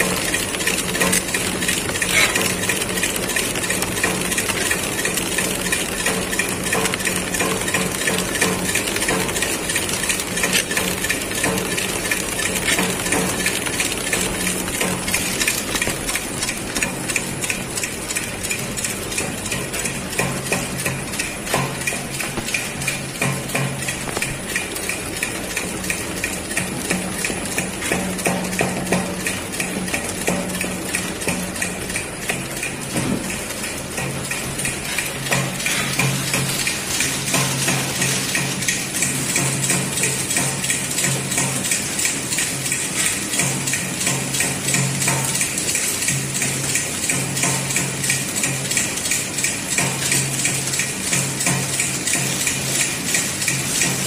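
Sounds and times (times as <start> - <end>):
machine hum: 0.0 - 40.5
packing machine clicking: 0.0 - 54.0.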